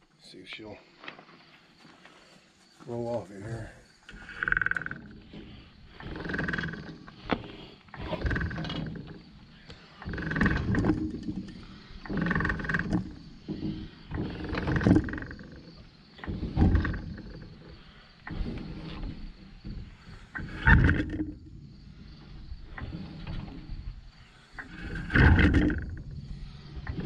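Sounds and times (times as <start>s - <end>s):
drawn-out creak: 4.0s - 27.0s
hydraulic jack pumping: 4.0s - 27.0s.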